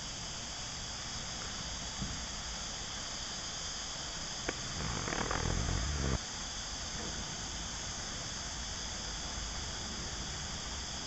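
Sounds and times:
cicadas chorus: 0:00.0 - 0:11.0
low rumbling noise: 0:04.5 - 0:06.2.

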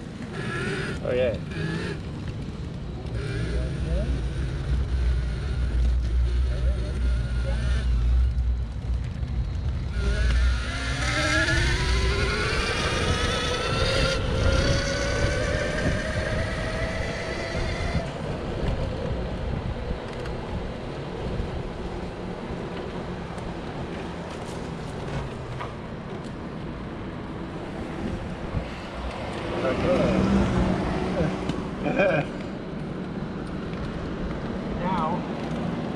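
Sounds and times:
steady rushing noise: 0:00.0 - 0:35.9
wheels rumbling on pavement: 0:00.0 - 0:35.9
electric motor whine: 0:09.9 - 0:18.0.

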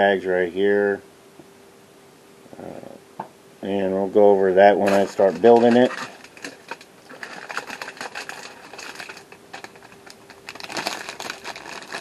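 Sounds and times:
plastic bags crinkling: 0:04.6 - 0:12.0.

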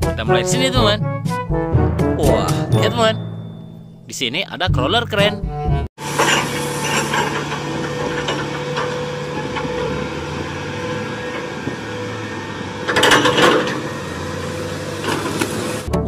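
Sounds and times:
crane diesel engine and winches: 0:06.0 - 0:15.9
chains clanking and rattling: 0:06.2 - 0:10.0.

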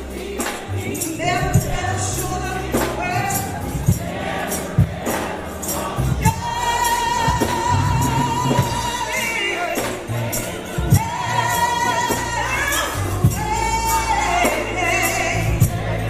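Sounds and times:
gospel singing with band: 0:00.0 - 0:16.0.

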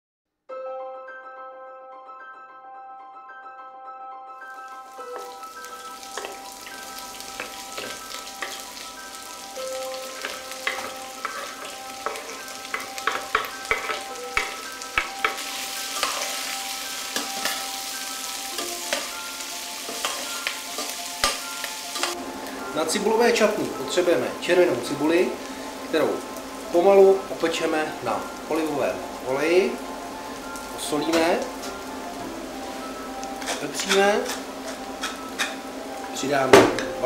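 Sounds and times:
onion sizzling in oil: 0:04.6 - 0:37.0.

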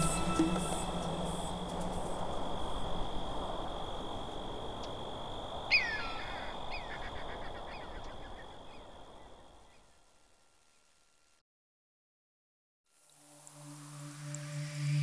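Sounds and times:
background music: 0:00.0 - 0:02.5.

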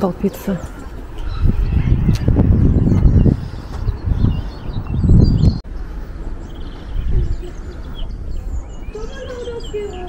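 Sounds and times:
wind buffeting microphone: 0:00.0 - 0:10.0
faint bird chirps: 0:04.3 - 0:10.0.

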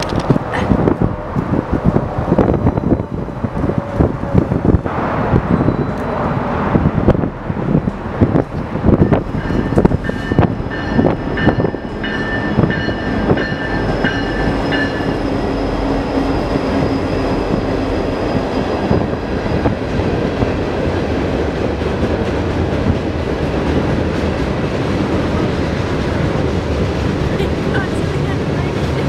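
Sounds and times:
rumble of passing train cars: 0:00.0 - 0:29.0
train wheels clattering on rails: 0:07.5 - 0:29.0
high wheel squealing: 0:07.6 - 0:20.2.

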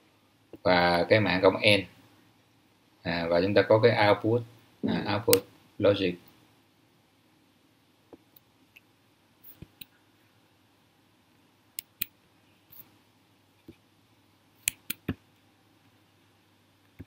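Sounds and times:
computer mouse clicking: 0:14.6 - 0:15.2.

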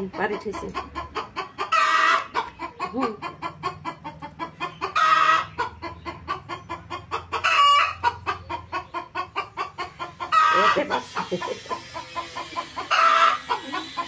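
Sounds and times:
hen clucking rapidly: 0:00.0 - 0:14.0
hen squawking loudly: 0:10.2 - 0:14.0.

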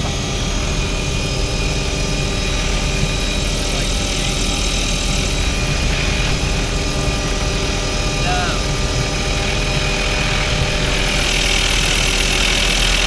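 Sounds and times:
helicopter rotor and engine: 0:00.0 - 0:13.0.

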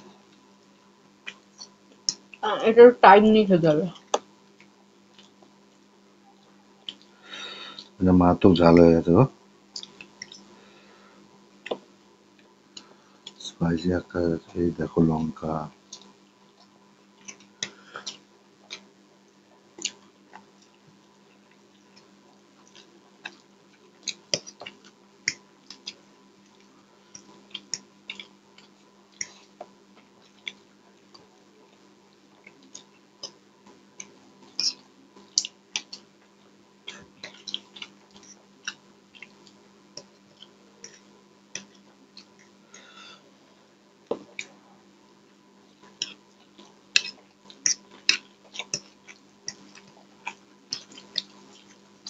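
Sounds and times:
people chewing noodles: 0:06.4 - 0:08.0, 0:09.7 - 0:11.0, 0:15.9 - 0:43.2, 0:45.3 - 0:52.0.

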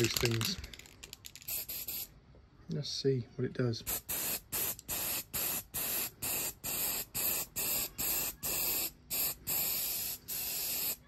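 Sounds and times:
aerosol can spraying: 0:01.4 - 0:02.1, 0:03.9 - 0:11.0.

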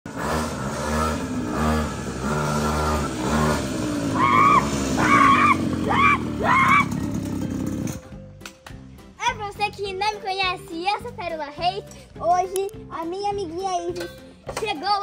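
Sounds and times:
pocket bike engine revving: 0:00.1 - 0:08.1
child shouting: 0:04.1 - 0:07.0.

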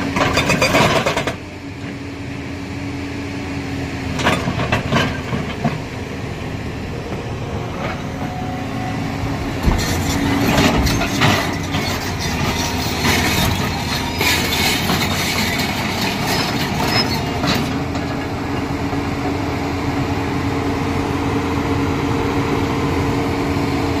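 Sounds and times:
diesel engines running: 0:00.0 - 0:24.0
hydraulic whine: 0:05.9 - 0:19.0
steel clanking on rock: 0:09.6 - 0:17.7.

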